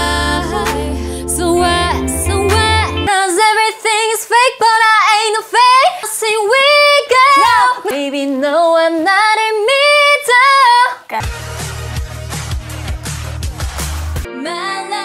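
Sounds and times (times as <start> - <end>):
woman singing unaccompanied: 0.0 - 11.2.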